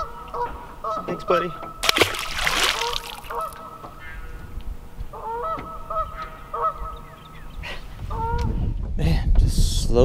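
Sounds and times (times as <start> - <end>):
geese honking: 5.2 - 7.1.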